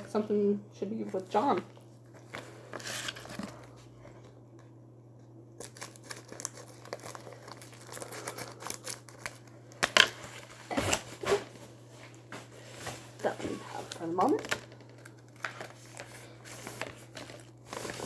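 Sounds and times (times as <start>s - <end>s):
plastic packaging crinkling: 5.6s - 11.6s, 13.1s - 18.0s.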